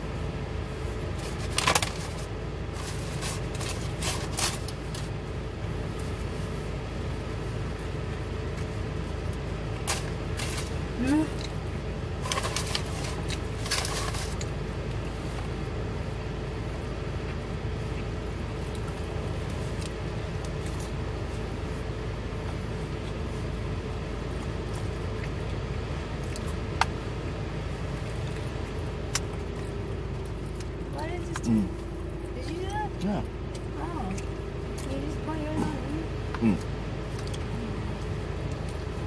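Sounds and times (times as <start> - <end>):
car engine idling hum: 0.0 - 39.0
quiet chewing: 17.1 - 39.0.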